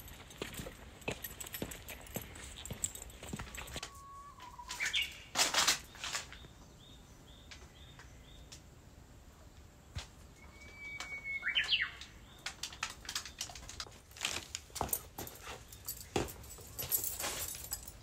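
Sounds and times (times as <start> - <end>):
bush warbler singing: 3.0 - 5.3, 10.4 - 13.4.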